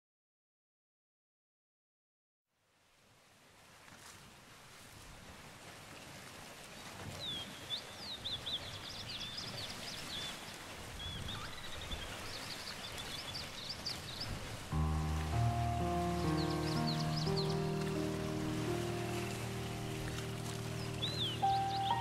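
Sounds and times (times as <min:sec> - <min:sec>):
birds chirping and trilling: 0:11.0 - 0:22.0
background hiss: 0:14.8 - 0:22.0.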